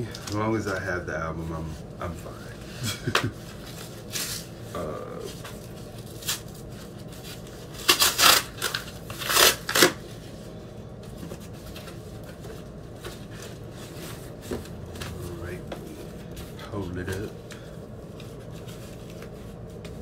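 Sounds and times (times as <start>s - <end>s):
cardboard ripping and rustling: 5.3s - 10.1s.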